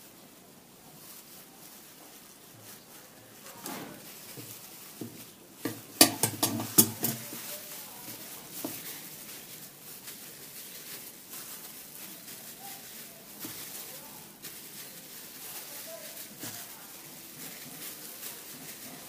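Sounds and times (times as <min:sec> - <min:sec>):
crisp bread rustling: 0:00.0 - 0:19.0
plastic gloves rustling: 0:00.0 - 0:19.0.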